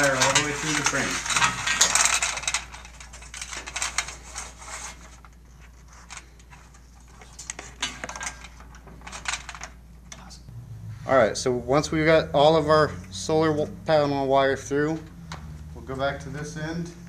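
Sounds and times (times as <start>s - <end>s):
cable clicking and rustling: 0.0s - 10.3s.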